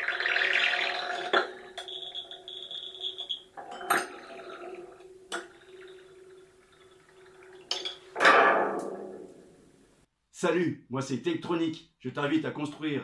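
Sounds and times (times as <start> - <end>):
high steady electronic tone: 0.9 - 3.6.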